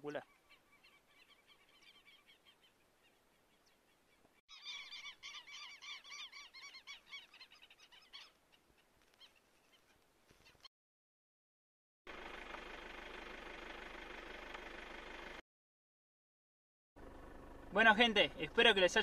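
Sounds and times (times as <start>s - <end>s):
flock of birds calling: 0.0s - 10.7s.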